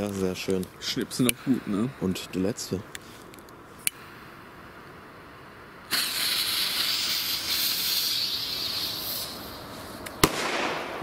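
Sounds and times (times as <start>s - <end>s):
firecracker fuse hissing: 5.8s - 11.0s.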